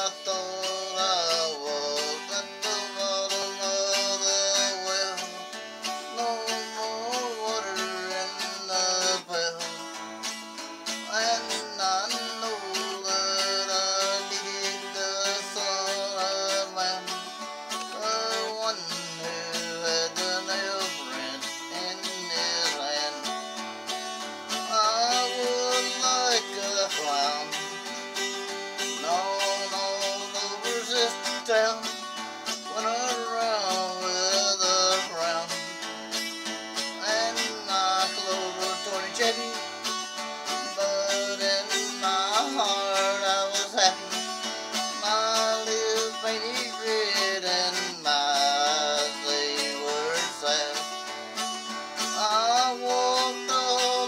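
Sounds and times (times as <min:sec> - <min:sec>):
acoustic guitar strumming: 0:00.0 - 0:54.0
man singing: 0:00.0 - 0:54.0.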